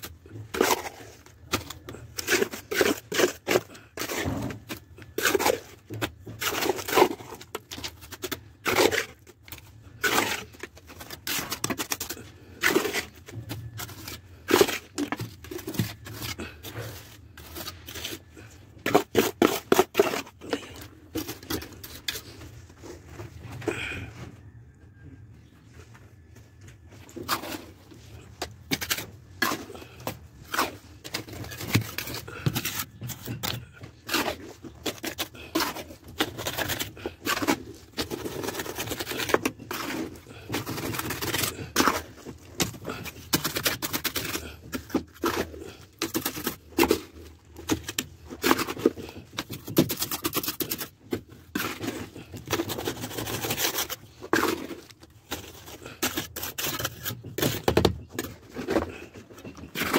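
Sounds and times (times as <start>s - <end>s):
irregular scraping and clicking: 26.7s - 59.9s.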